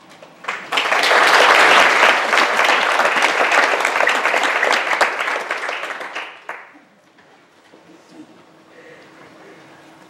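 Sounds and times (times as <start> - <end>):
congregation applauding: 0.4 - 6.8.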